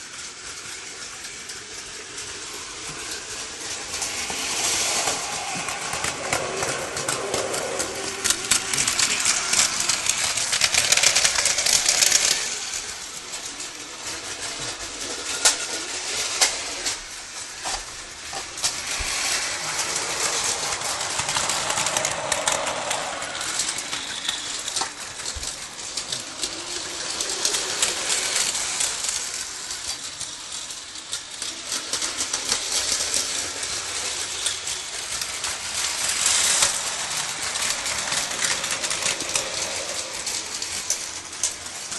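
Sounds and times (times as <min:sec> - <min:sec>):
toy trains clattering on plastic track: 0:00.0 - 0:41.9.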